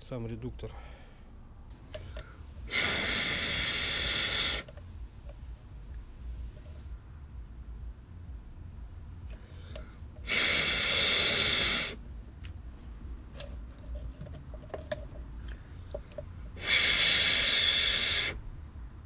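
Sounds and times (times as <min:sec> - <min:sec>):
man blowing hard: 0:02.6 - 0:04.7, 0:10.2 - 0:12.0, 0:16.5 - 0:18.4
faint clicks and knocks: 0:13.3 - 0:16.4.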